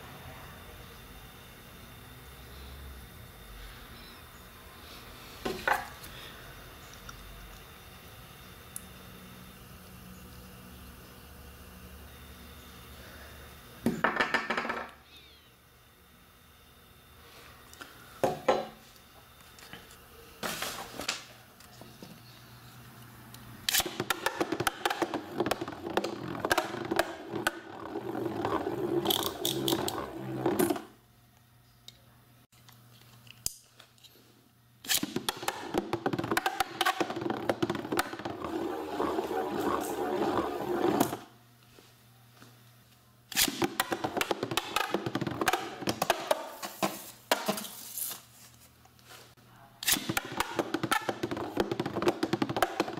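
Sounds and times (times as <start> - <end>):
spinning top whirring and clattering: 23.7 - 31.0, 35.0 - 41.3.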